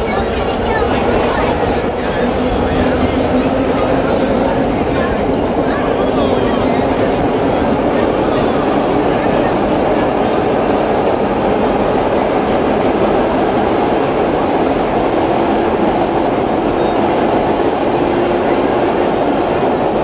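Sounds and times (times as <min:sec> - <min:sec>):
subway car rumbling and rattling: 0:00.0 - 0:20.0.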